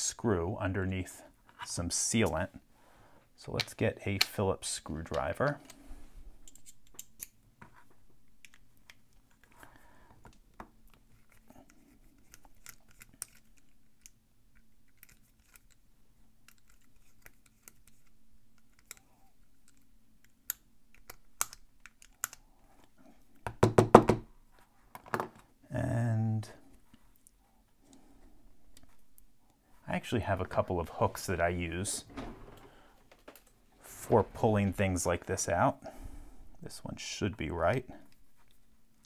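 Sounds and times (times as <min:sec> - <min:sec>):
screwdriver clicking and scraping: 0:06.4 - 0:07.4, 0:11.1 - 0:14.1.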